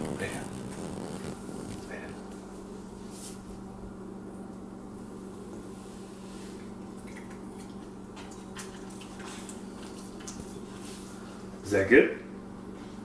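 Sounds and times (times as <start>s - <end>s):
low hum: 0.0s - 8.8s.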